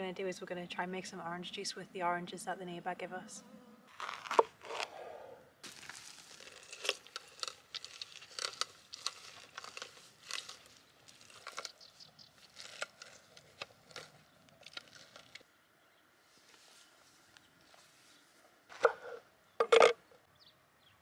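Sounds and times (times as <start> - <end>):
orange grinding on citrus reamer: 5.6 - 15.4.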